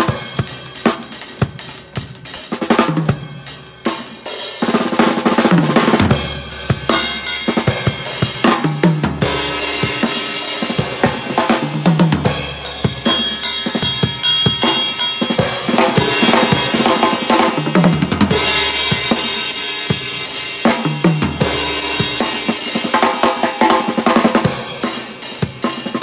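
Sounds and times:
drum kit played hard: 0.0 - 26.0
ringing cymbals: 6.1 - 26.0.

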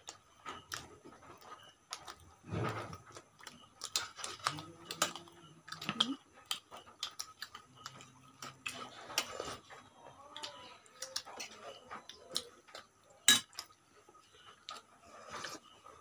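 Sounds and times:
chewing smacks: 0.1 - 9.8
spoon clinking on steel dish: 13.2 - 13.7.

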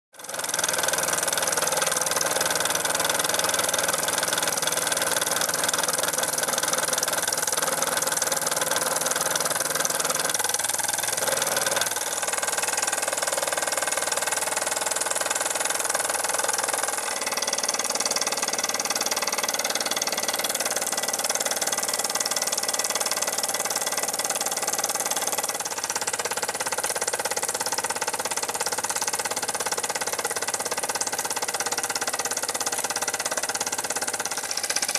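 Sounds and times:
toy steam engine chuffing: 0.2 - 34.9.

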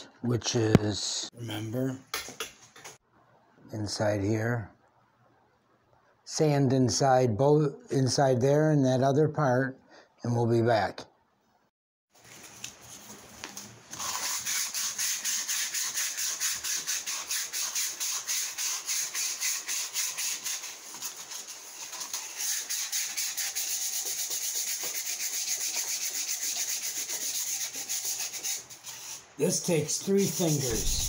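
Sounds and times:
sanding sponge scrubbing metal: 14.0 - 31.0.

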